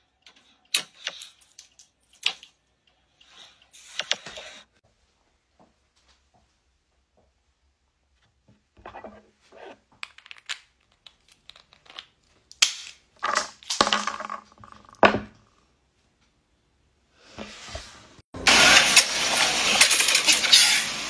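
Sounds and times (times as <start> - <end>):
walnut shells cracking: 10.0 - 15.0.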